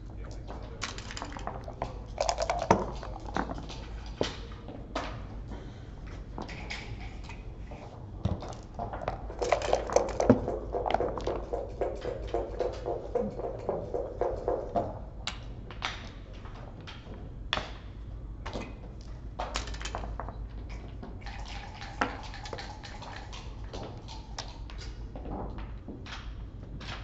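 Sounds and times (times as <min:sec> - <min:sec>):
steady low hum: 0:00.0 - 0:19.4.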